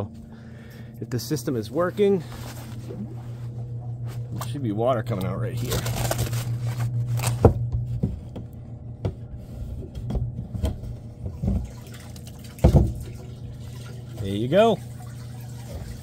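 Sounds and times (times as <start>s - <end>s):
fabric cover rustling: 2.2s - 4.2s, 5.6s - 7.4s
water trickling and splashing: 11.3s - 16.0s.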